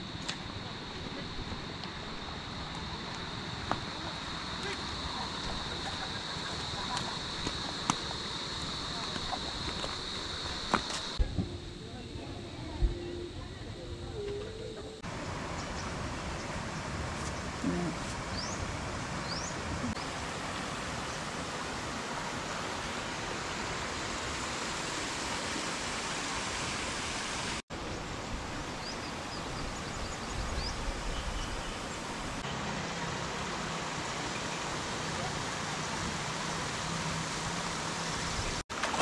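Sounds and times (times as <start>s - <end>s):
water rushing into a pool: 34.6s - 39.0s.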